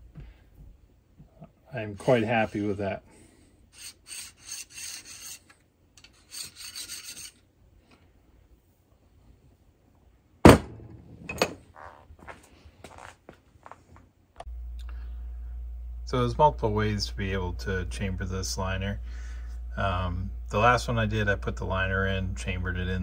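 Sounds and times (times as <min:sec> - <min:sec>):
file scraping metal: 0:01.8 - 0:03.0, 0:03.7 - 0:07.4.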